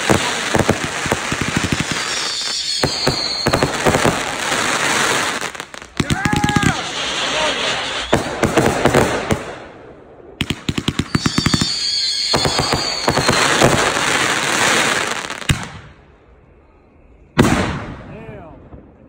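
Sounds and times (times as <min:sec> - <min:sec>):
fireworks sharp pops: 0:10.4 - 0:14.2
fireworks shells bursting: 0:10.5 - 0:14.0
fireworks sharp bang: 0:17.4 - 0:18.9.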